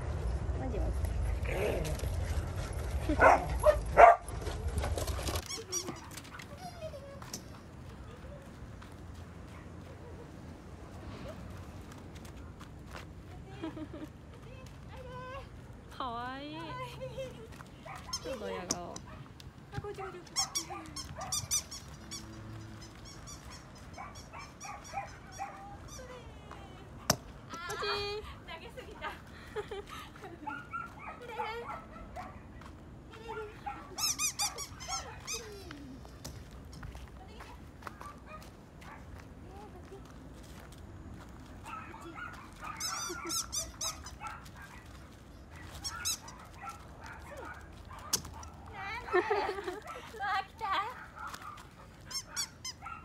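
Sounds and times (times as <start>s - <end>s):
puppy whining: 5.2s - 7.0s, 42.6s - 44.4s
puppy whimpering and yipping: 20.3s - 26.2s, 33.7s - 36.0s, 41.7s - 44.4s, 45.6s - 46.8s, 52.1s - 53.0s.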